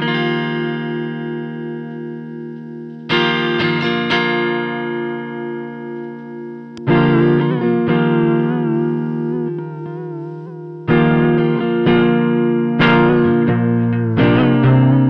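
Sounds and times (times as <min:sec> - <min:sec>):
electric guitar chords: 0:00.0 - 0:15.0
guitar notes picked: 0:00.0 - 0:15.0.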